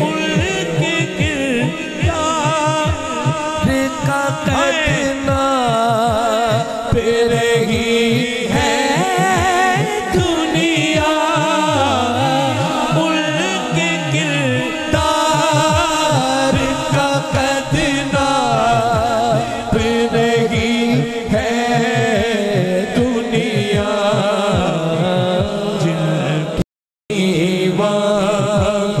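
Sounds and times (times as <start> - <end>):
man singing through sound system: 0.0 - 29.0
steady low beat: 14.9 - 25.8.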